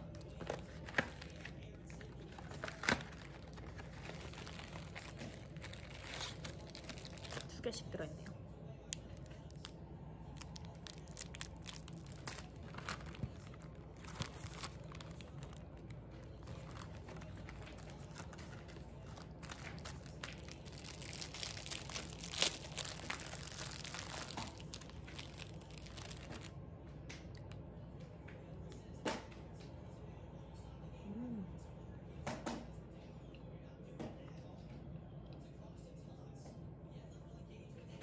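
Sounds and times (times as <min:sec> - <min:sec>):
plastic wrapper crinkling: 0:00.0 - 0:07.6, 0:08.9 - 0:26.5.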